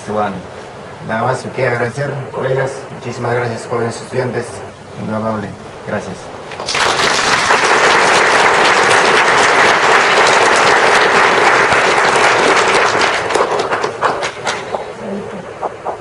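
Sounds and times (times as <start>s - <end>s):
crowd applauding: 6.6s - 16.0s.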